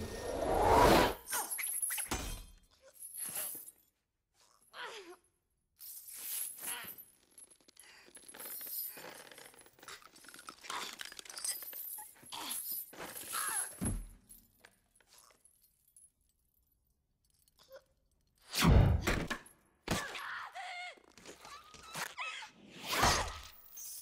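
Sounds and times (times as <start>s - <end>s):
metal chain rattling: 5.8s - 18.4s.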